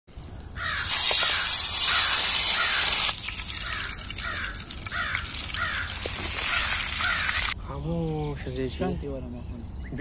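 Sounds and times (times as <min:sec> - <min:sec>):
bird calling: 0:00.1 - 0:07.9
beef sizzling in a frying pan: 0:00.8 - 0:07.6.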